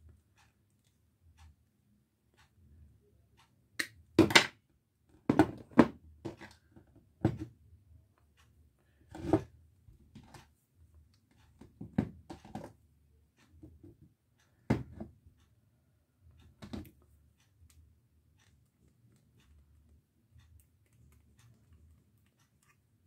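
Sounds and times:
knocks and rustles on tabletop: 5.2 - 7.5, 9.1 - 9.5, 11.6 - 12.8, 14.6 - 15.2.

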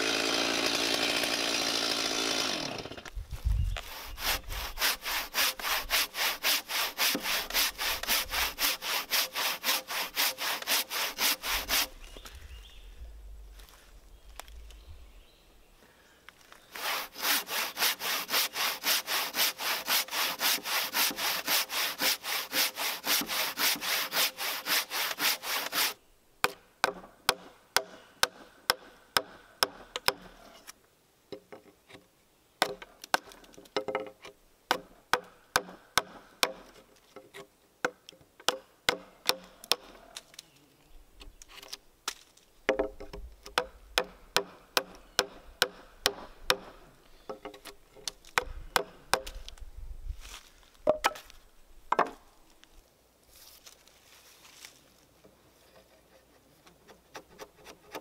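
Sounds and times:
handsaw cutting wood: 0.0 - 3.0, 3.8 - 12.0, 16.7 - 26.0, 55.7 - 58.0
chisel chopping wood: 25.8 - 30.3, 32.6 - 36.8, 37.8 - 40.0, 42.1 - 49.5, 50.9 - 51.3, 51.9 - 52.2.

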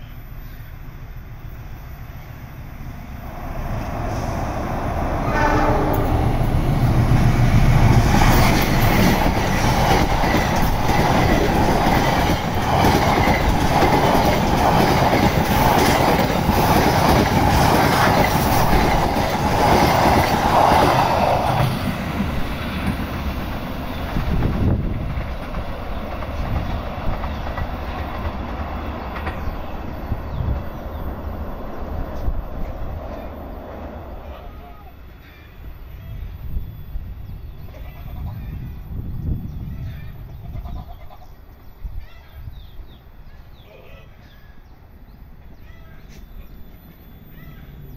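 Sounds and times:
diesel locomotive passing: 0.0 - 47.9
train wheels clacking over rail joints: 7.6 - 29.6.

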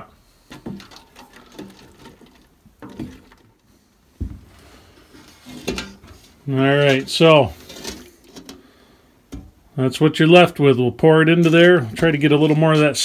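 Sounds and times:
stick scraping a steel pot: 0.5 - 3.6, 4.9 - 8.7, 11.2 - 13.0
dull thump: 4.2 - 4.5.

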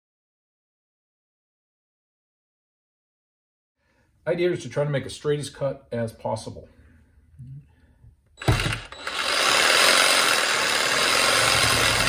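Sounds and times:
reciprocating saw cutting pipe: 8.4 - 12.0
saw starting knock: 8.4 - 12.0.

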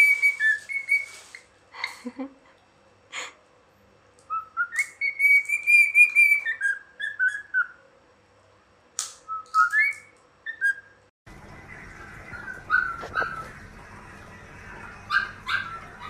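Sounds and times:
cockatiel whistling: 0.0 - 1.3, 4.3 - 7.8, 9.3 - 11.0, 12.3 - 13.5, 15.1 - 16.0.

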